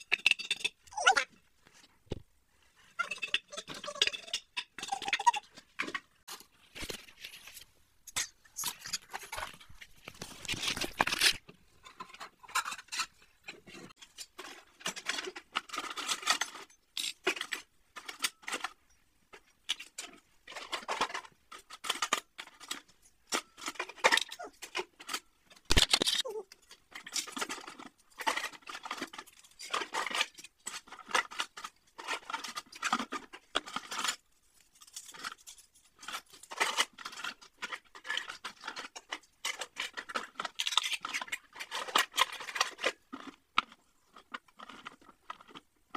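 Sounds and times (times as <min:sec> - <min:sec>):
kitchenware clattering: 0:10.8 - 0:18.1.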